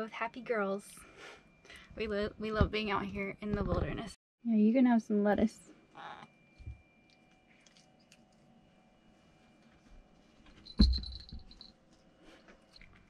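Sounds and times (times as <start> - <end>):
cat nibbling lettuce: 7.0 - 8.5
collar bell jingle: 10.5 - 11.8.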